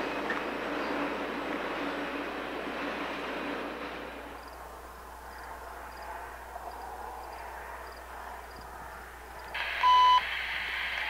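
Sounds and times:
distant train noise: 0.0s - 11.0s
radio static hiss: 3.7s - 11.0s
short beep: 9.8s - 10.2s.

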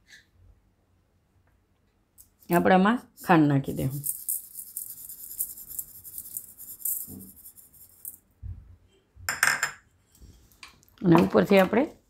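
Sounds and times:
sugar pouring into metal bowl: 3.7s - 8.2s.

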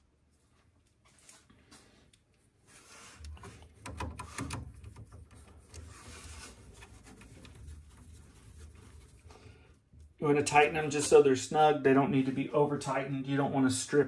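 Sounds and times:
hand driver turning screws: 3.2s - 6.2s.

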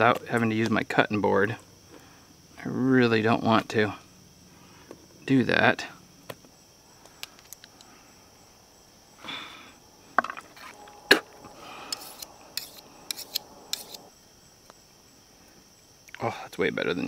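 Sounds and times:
knife scraping fish: 11.9s - 14.1s.

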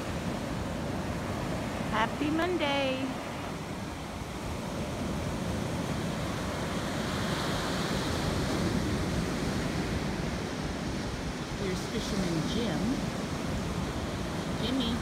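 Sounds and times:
ocean surf breaking: 0.0s - 15.0s
wind rumble on microphone: 0.0s - 15.0s.

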